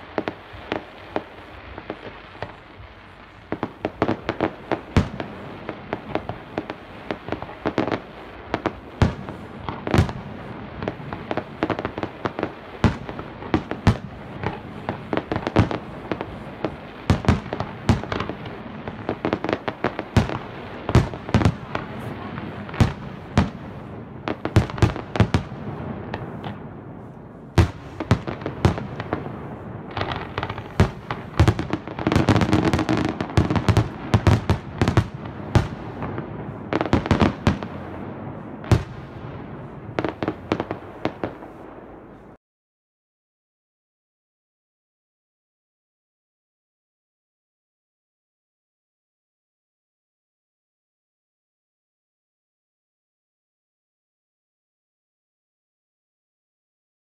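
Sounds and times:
fireworks bangs: 0:00.0 - 0:42.4.

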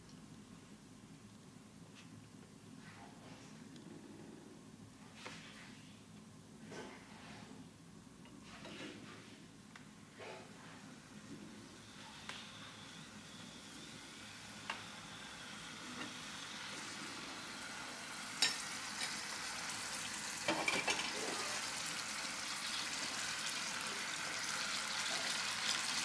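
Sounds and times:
chicken sizzling in hot oil: 0:11.7 - 0:26.0.

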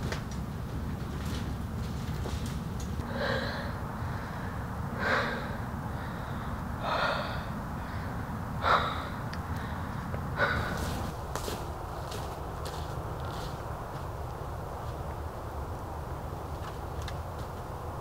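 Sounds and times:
steady low rumble: 0:00.0 - 0:18.0
person breathing heavily: 0:03.0 - 0:13.6.

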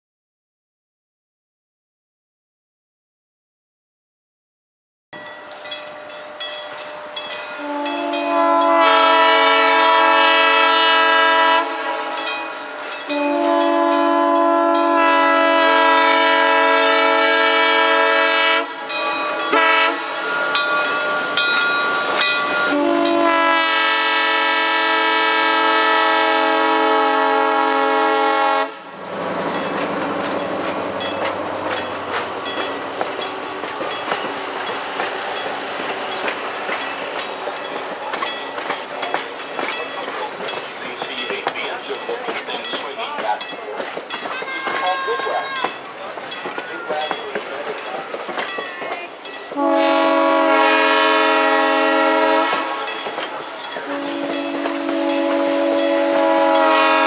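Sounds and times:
locomotive air horn blasts: 0:07.6 - 0:28.9, 0:49.5 - 0:53.0, 0:53.8 - 0:57.0.

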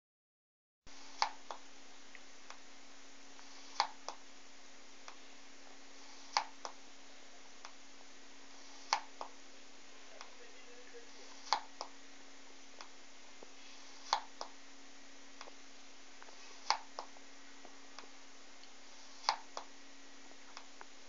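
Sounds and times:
steady hum and hiss: 0:00.9 - 0:21.0.

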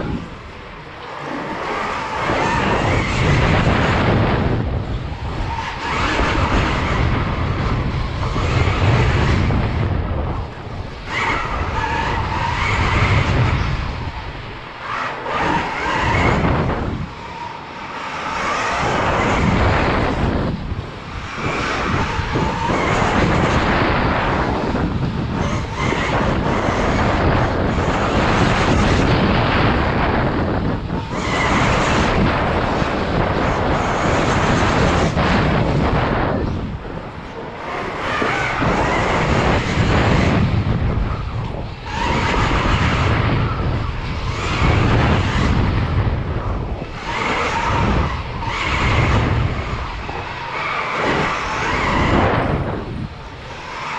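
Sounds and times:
wind rush and tyre noise: 0:00.0 - 0:53.9.

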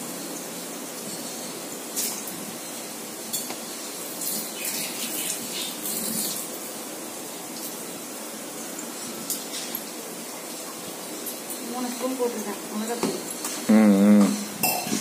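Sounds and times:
hissing sizzle: 0:00.0 - 0:15.0
spoon clinking and scraping pan: 0:14.6 - 0:15.0.

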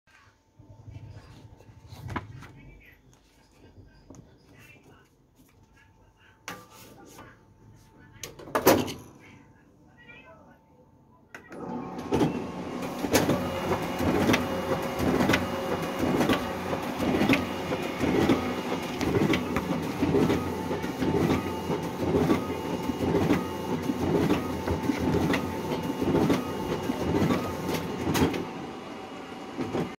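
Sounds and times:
printing machine hum: 0:11.5 - 0:30.0.

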